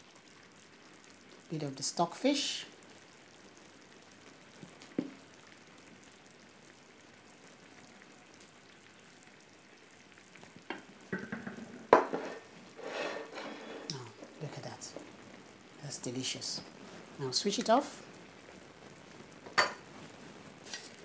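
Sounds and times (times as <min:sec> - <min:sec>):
soup simmering faint sizzle: 0:00.0 - 0:21.0
wooden spoon knocks: 0:11.1 - 0:12.2.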